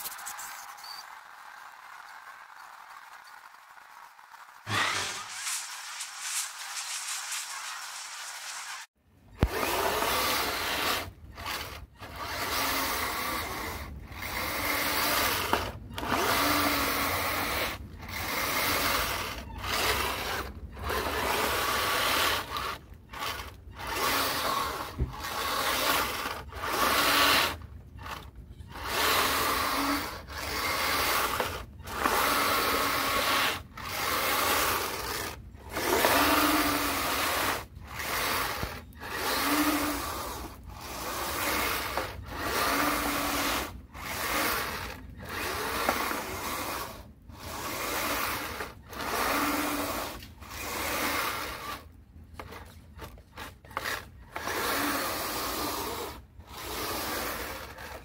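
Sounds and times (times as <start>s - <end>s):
toy snowcat motors and tracks grinding: 0.0s - 58.0s
blade scraping slush: 4.7s - 58.0s.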